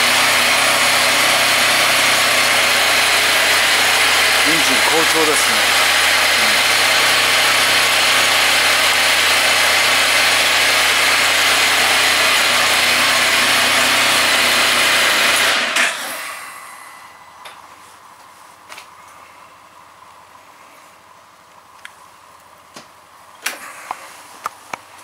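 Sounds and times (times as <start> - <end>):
motorcycle engine idling: 0.0 - 15.4
loud whirring hiss: 2.4 - 9.3.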